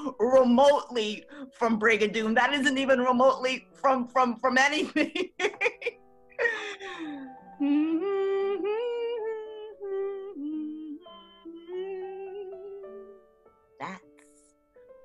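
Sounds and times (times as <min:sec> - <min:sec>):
woman humming a slow tune: 0:06.9 - 0:13.4
woman speaking: 0:13.8 - 0:14.0.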